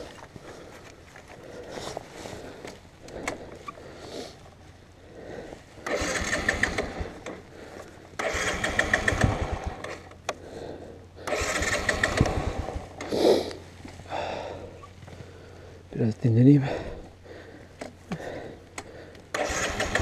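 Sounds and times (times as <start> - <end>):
motorcycle engine starting: 5.2 - 15.8, 16.7 - 20.0.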